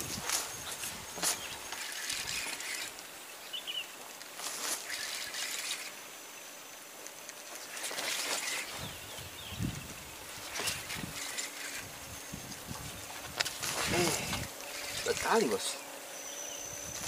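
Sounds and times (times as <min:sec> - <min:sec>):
fishing reel winding: 0:01.7 - 0:03.0.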